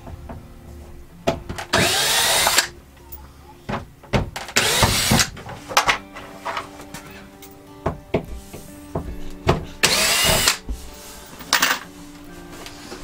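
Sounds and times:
cordless drill running: 1.8 - 2.7, 4.6 - 5.2, 9.8 - 10.6.

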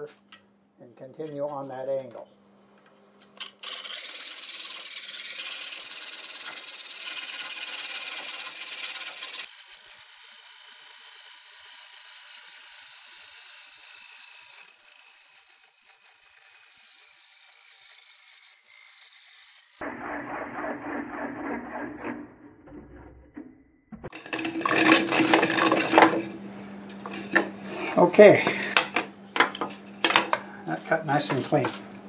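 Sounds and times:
lathe blade scraping wood: 3.4 - 10.7, 24.1 - 29.0.

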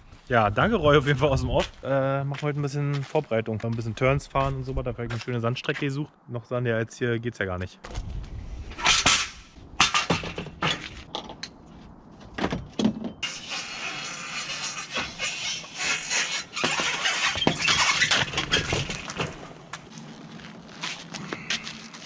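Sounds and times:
metal clanks and scraping: 8.8 - 11.6.

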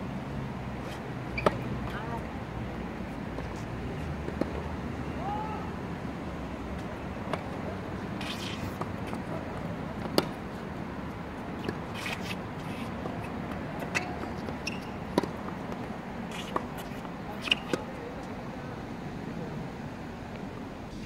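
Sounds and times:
shoe scuffs on court: 8.0 - 9.3, 11.6 - 15.4, 16.2 - 18.0
tennis ball hit by rackets: 8.2 - 10.5, 11.6 - 17.8.

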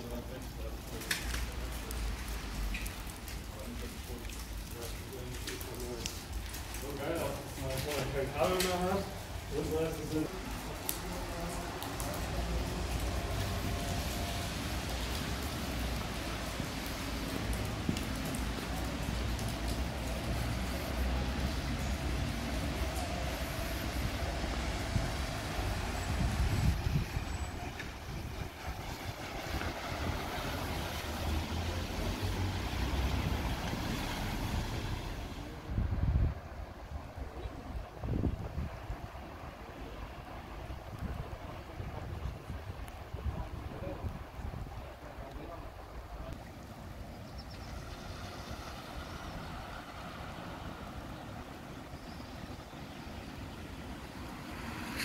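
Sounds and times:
city street noise: 0.0 - 55.0
traffic on wet road: 0.0 - 55.0
wind buffeting microphone: 21.6 - 30.4, 35.6 - 39.4, 40.5 - 46.4.

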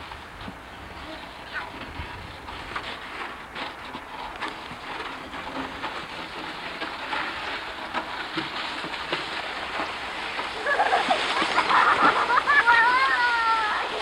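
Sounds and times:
plastic sled sliding over snow: 0.0 - 14.0
child's voice: 12.6 - 13.9.

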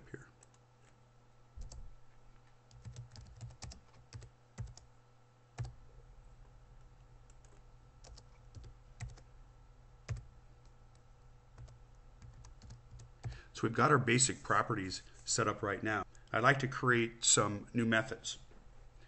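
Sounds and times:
keyboard typing: 2.7 - 4.9, 5.6 - 5.8, 7.3 - 9.3, 10.1 - 11.0, 11.6 - 13.4
low hum: 4.9 - 15.3.

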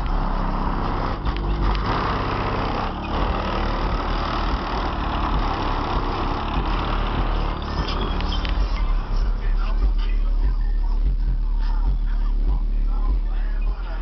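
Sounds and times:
deep bass from car subwoofer: 0.0 - 14.0.

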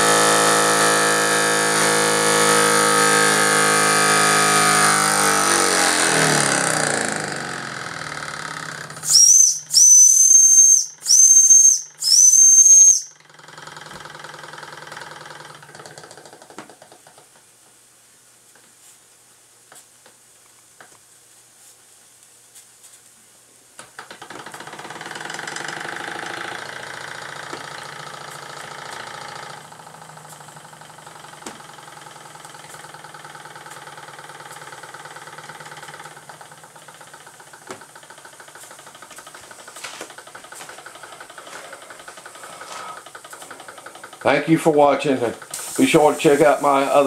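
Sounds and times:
toy steam engine clattering: 32.8 - 47.0.

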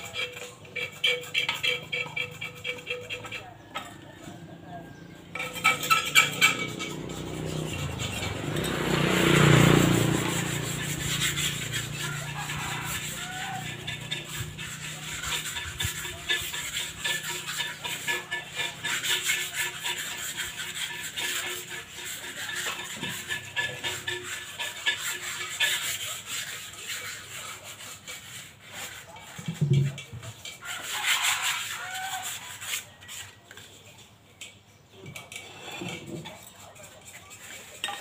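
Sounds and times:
scrubbing cement flower pots: 0.0 - 38.0.

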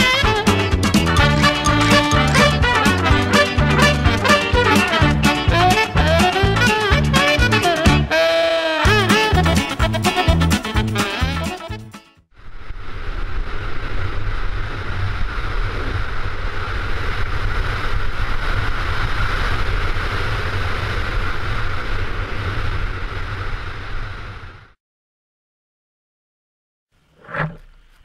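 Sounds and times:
wind rushing over microphone: 12.4 - 24.8.

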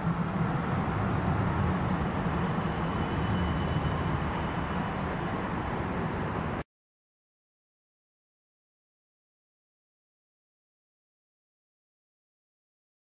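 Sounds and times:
city street traffic rumble: 0.0 - 6.6.

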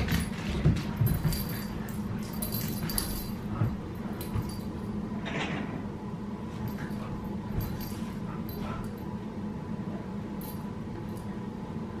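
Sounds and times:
dogs scuffling: 0.0 - 5.2, 6.4 - 9.0.

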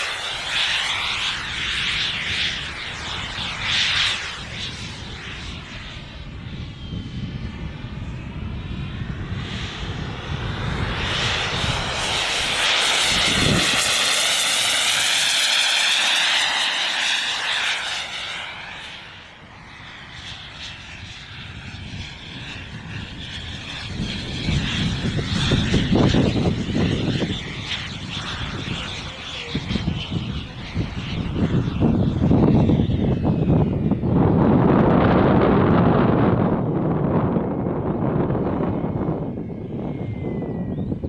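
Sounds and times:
model jet turbine whining: 0.0 - 41.0.

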